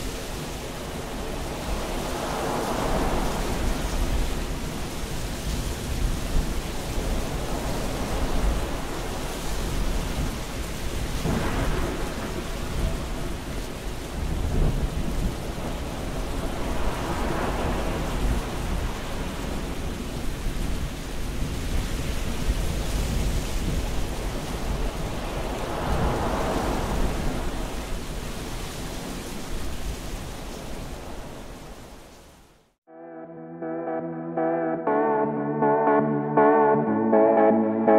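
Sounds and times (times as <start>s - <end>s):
steady rain: 0.0s - 32.6s
thunder rolling: 10.9s - 19.1s.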